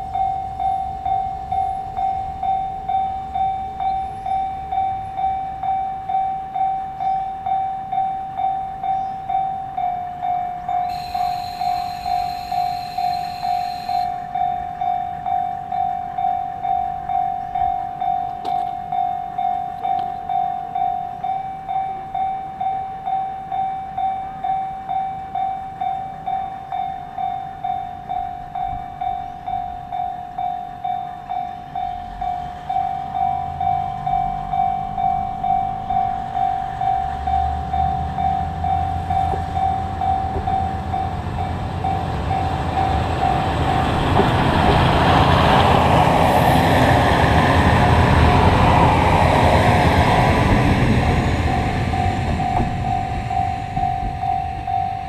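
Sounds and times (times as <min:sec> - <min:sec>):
level-crossing bell ringing: 0:00.0 - 0:46.4, 0:51.1 - 0:55.0
train passing with loud rush: 0:00.0 - 0:55.0
diesel engine rumble: 0:33.2 - 0:55.0.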